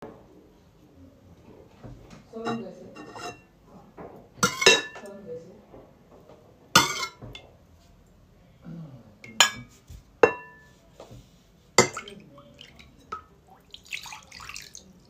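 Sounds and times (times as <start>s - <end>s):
metal ladle clinking ceramic bowl: 11.8s - 12.2s
liquid trickling: 11.8s - 15.0s.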